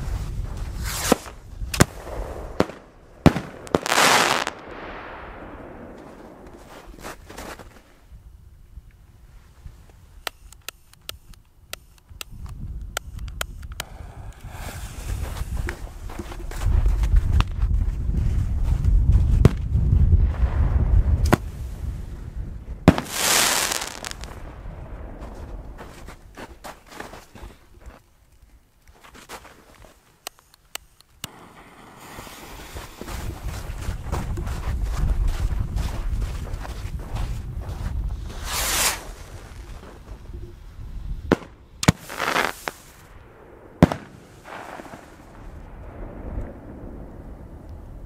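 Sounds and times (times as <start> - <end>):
small firework pops: 0.8 - 7.8, 10.2 - 17.6, 19.4 - 19.7, 21.2 - 21.5, 22.9 - 26.5, 41.3 - 46.6
fireworks bangs: 0.8 - 7.9, 19.4 - 26.7, 31.3 - 34.2, 38.2 - 40.1, 41.2 - 48.0
low rumble: 4.6 - 7.3, 24.1 - 26.4, 45.2 - 48.0
firework hissing burst: 13.8 - 15.6, 22.9 - 24.4, 31.3 - 33.0, 38.4 - 39.2, 41.9 - 43.1.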